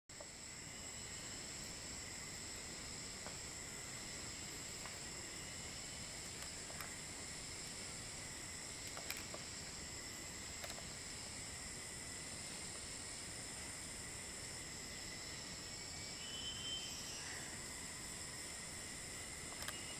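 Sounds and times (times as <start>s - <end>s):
insect chorus droning: 0.1s - 19.9s
faint clicks: 8.8s - 9.5s, 10.5s - 10.9s, 19.5s - 19.9s.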